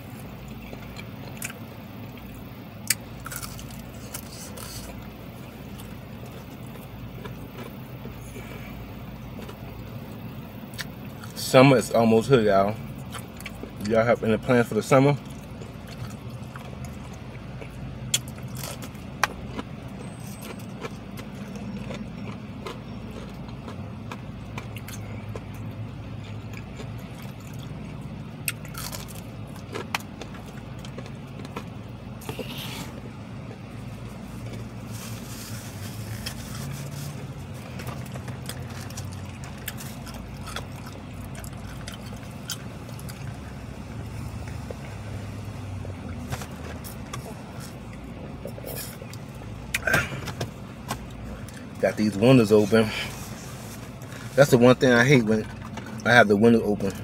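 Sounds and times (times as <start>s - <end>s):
person chewing: 0.0s - 11.4s, 12.9s - 13.9s, 15.2s - 51.8s
low vehicle hum: 0.0s - 57.0s.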